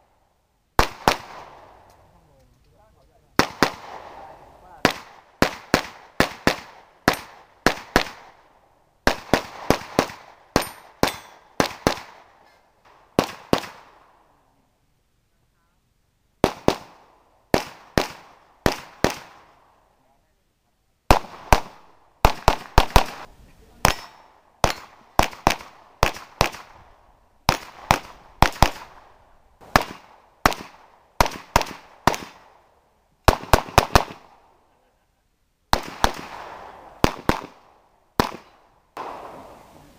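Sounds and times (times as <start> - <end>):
rapid pistol shots: 0.8 - 1.8, 3.4 - 12.3, 12.9 - 14.1, 16.4 - 19.6, 21.1 - 26.9, 27.5 - 32.6, 33.3 - 34.5, 35.7 - 39.4.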